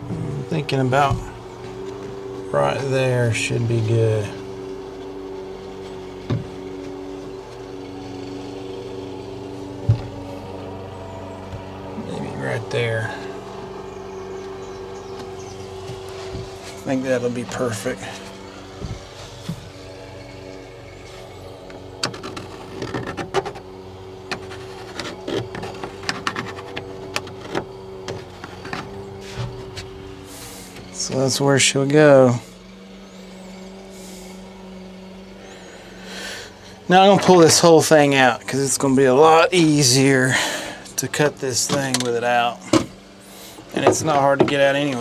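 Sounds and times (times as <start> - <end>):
machine hum: 0.0 - 45.0
knocks on plywood: 43.8 - 44.6.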